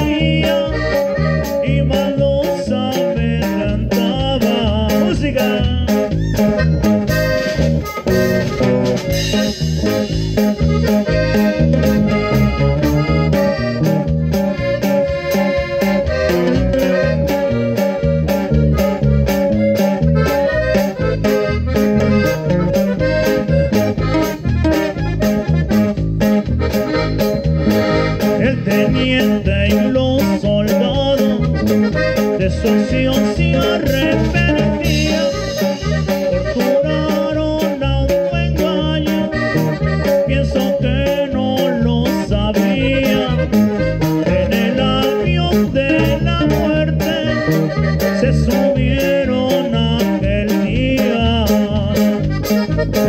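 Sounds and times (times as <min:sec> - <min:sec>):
man singing into a microphone: 0:00.0 - 0:06.2, 0:28.2 - 0:52.2
accordion melody: 0:00.0 - 0:53.0
drum kit steady beat: 0:00.0 - 0:53.0
electric bass: 0:00.0 - 0:53.0
guitar: 0:00.0 - 0:53.0.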